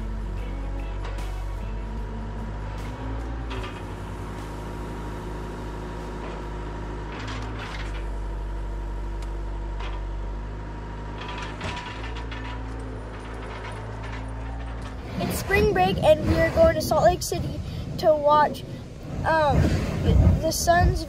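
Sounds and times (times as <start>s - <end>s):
skid steer engine running: 0.0s - 21.0s
steel bucket scraping ice and gravel: 11.2s - 17.5s, 19.1s - 21.0s.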